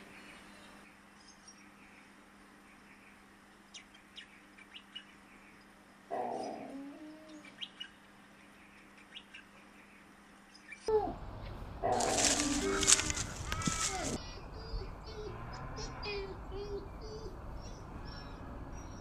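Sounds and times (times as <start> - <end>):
birds chirping: 0.0 - 19.0
low background hum: 0.0 - 19.0
animal call: 6.1 - 7.6, 11.8 - 17.4.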